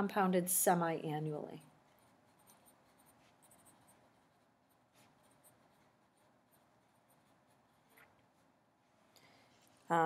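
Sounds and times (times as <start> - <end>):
pencil writing on paper: 1.7 - 8.6.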